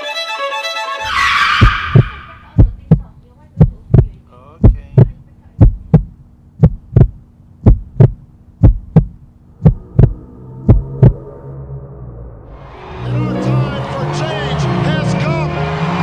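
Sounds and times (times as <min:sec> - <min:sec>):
heartbeat thumps: 0:01.6 - 0:11.3
faint steady hum: 0:02.5 - 0:12.4.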